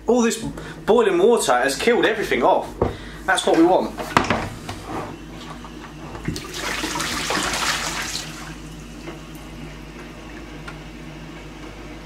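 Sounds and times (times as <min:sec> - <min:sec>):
water gushing into sink: 0:06.1 - 0:08.8.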